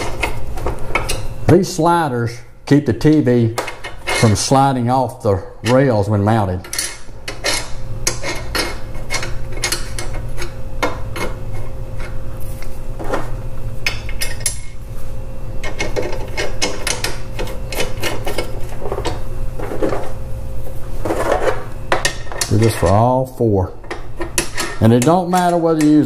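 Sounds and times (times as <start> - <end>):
steady low hum: 0.0 - 26.0
screwdriver clicks and scrapes on metal: 6.6 - 12.2.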